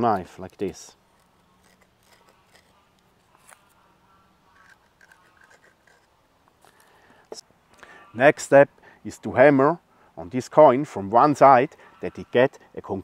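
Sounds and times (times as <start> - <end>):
knife scraping in wood: 0.0 - 3.8, 4.5 - 6.2.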